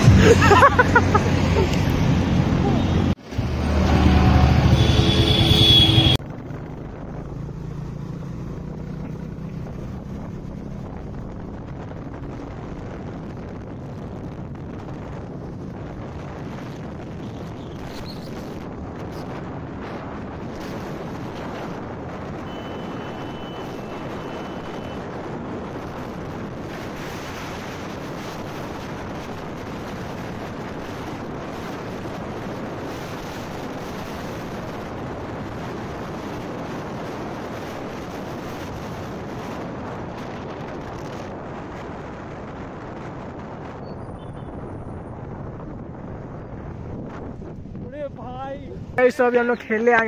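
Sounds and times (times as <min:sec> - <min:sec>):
wind rushing over microphone: 0:00.0 - 0:50.0.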